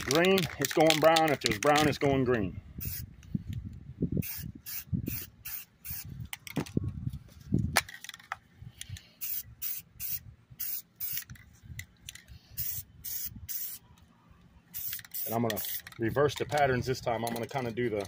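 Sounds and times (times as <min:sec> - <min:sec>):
spray paint can hissing: 0:02.8 - 0:03.1, 0:04.2 - 0:06.1, 0:09.2 - 0:11.4, 0:12.6 - 0:13.8, 0:14.7 - 0:16.0.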